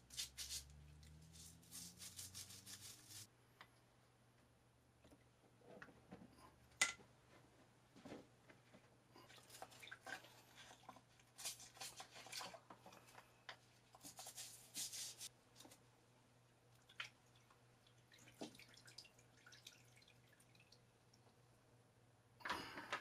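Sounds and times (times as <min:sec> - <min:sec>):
stiff brush scrubbing: 0:00.0 - 0:03.3, 0:14.0 - 0:15.3
liquid splashing and dripping: 0:16.7 - 0:21.4.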